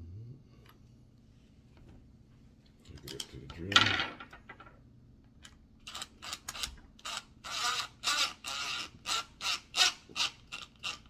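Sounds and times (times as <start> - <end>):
power drill driving screw: 5.9 - 11.0.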